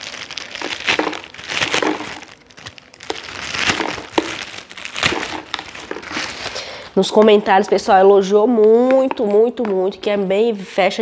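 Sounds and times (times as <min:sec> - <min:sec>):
plastic packaging crinkling: 0:00.0 - 0:08.1.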